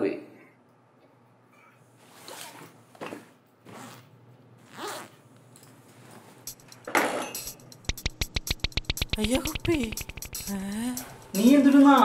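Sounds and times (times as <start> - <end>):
zipper on fabric bag: 3.7 - 5.2.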